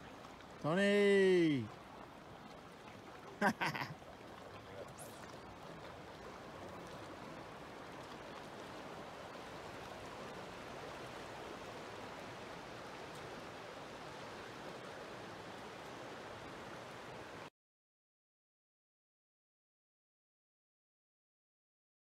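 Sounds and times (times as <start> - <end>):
fast-flowing river rushing: 0.0 - 17.5.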